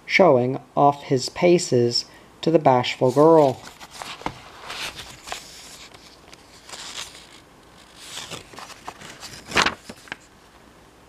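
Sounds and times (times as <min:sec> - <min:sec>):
book pages rustling: 0:03.0 - 0:10.4.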